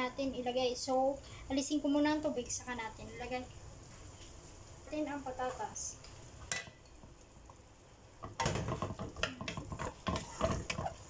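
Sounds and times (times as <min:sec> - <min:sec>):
spatula scraping frying pan: 0:08.4 - 0:11.0.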